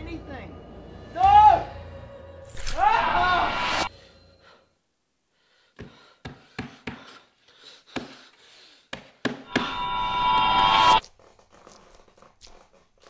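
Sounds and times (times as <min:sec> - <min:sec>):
loud high-pitched tone: 0:09.5 - 0:11.0.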